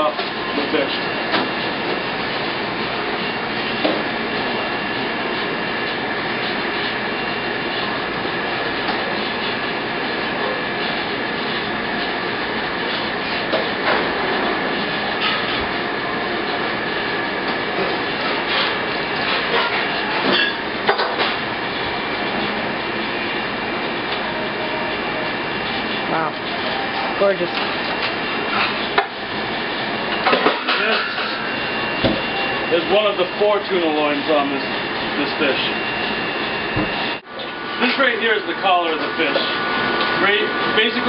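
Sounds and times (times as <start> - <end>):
high tone: 31.0 - 37.2.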